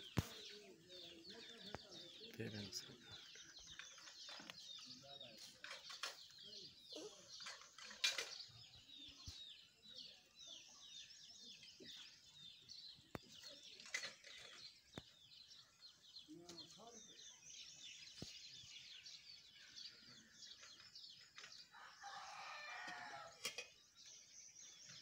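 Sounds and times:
small birds chattering: 0.0 - 25.0.

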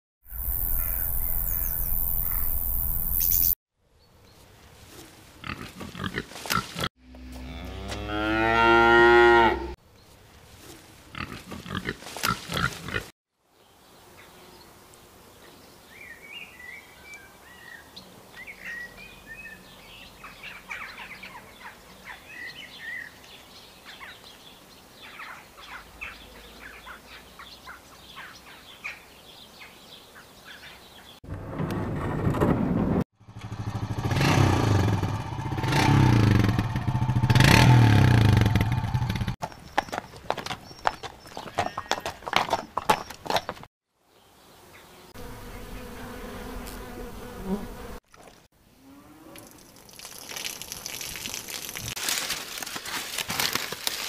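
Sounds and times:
cow mooing: 7.1 - 9.8
rustling: 49.9 - 54.0.

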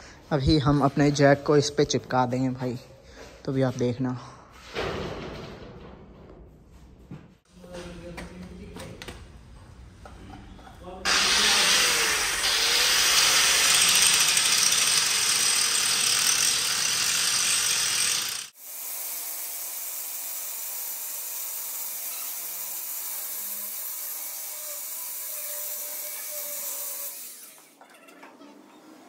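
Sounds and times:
angle grinder grinding steel: 11.1 - 27.9.

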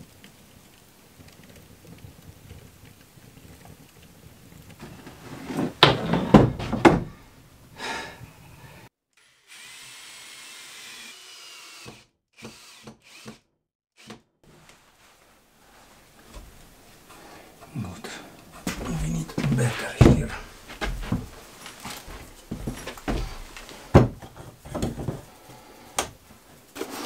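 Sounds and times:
wood stove fire crackling: 0.0 - 8.9, 14.5 - 27.0
cordless drill driving into wall: 9.4 - 14.2
loud knocks and pops: 23.9 - 25.2.

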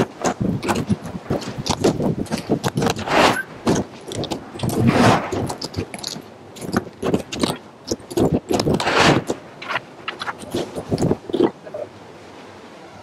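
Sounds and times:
wooden battens clattering: 0.0 - 11.3.

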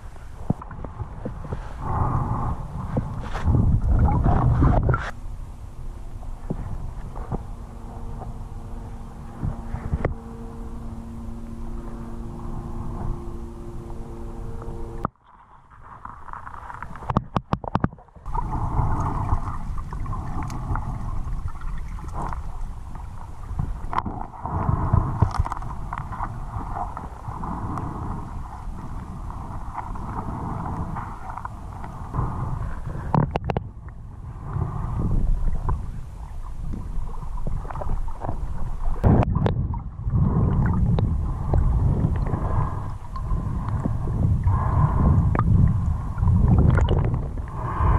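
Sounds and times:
muffled underwater river rush: 0.0 - 47.9
small clicks and ticks: 25.2 - 27.1, 33.1 - 34.0.

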